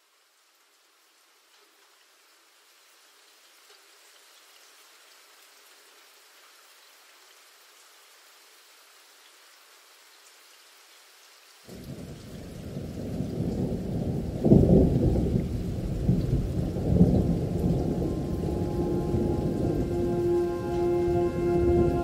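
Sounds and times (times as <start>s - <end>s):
rain hiss: 0.0s - 22.0s
rolling thunder: 11.7s - 22.0s.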